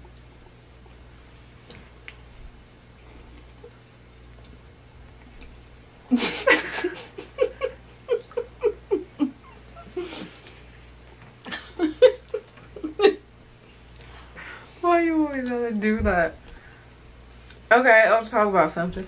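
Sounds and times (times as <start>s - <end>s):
person laughing: 6.1s - 10.4s, 11.4s - 13.2s.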